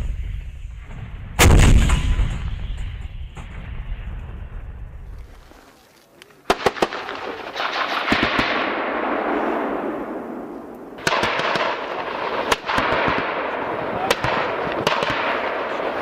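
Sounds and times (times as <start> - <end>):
gunshots: 1.4 - 4.2, 6.5 - 16.0.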